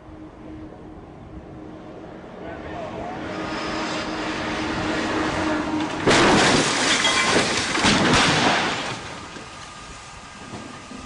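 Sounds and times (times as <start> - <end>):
truck crashing into wall: 6.0 - 9.5.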